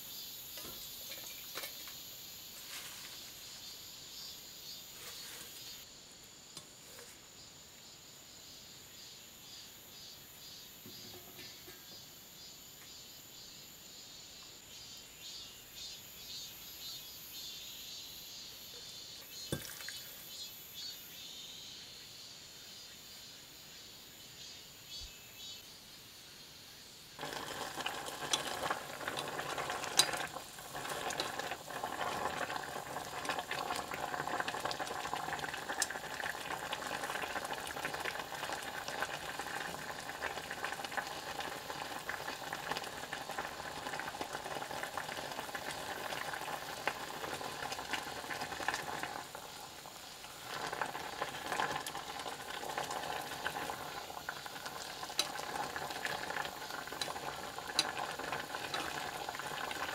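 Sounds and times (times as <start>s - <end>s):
water boiling in a pot: 0.0s - 8.0s, 9.4s - 12.1s, 18.6s - 20.9s, 27.2s - 59.9s.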